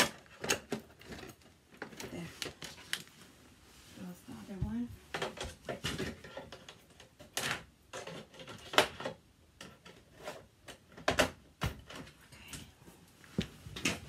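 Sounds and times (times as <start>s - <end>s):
plastic parts clacking and clicking: 0.0s - 2.9s, 5.1s - 12.2s.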